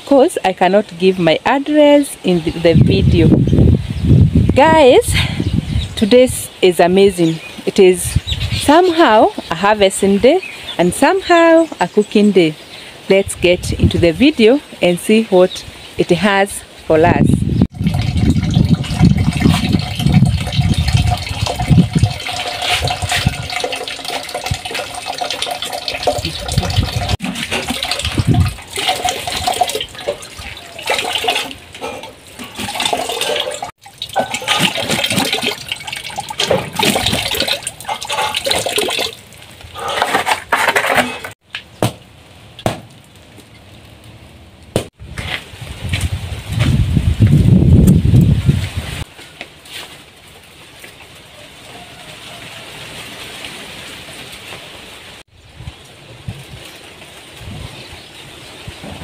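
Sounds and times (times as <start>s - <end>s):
water splashing over basket: 17.7s - 40.1s
water falling into bucket: 17.7s - 41.0s.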